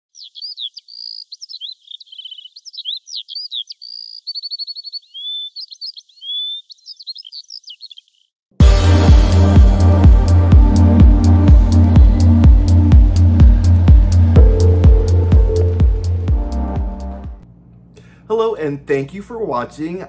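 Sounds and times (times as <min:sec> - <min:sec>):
songbird singing: 0:00.0 - 0:08.4
loud electronic music: 0:08.6 - 0:17.4.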